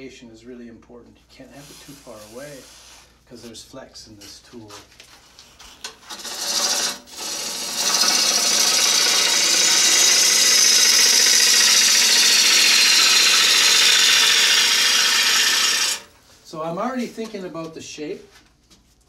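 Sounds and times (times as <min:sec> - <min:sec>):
gouge cutting wood on lathe: 0:06.0 - 0:16.1.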